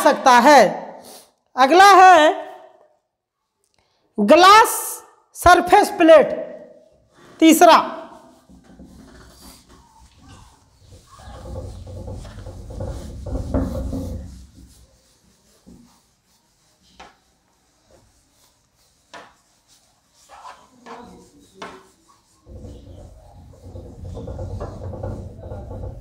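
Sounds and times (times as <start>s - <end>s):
duster wiping a whiteboard: 5.8s - 26.0s.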